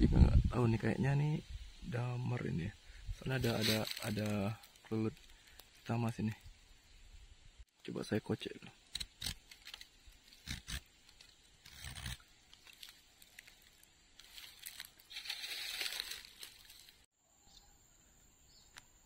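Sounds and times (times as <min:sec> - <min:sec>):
rustling scrape on bark: 0:03.3 - 0:05.6, 0:09.3 - 0:17.0.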